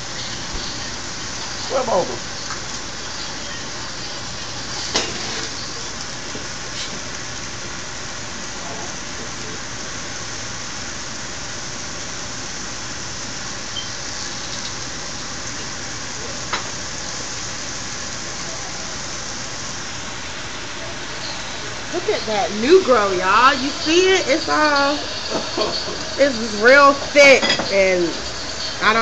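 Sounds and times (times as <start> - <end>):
chicken sizzling in a skillet: 0.0 - 29.0.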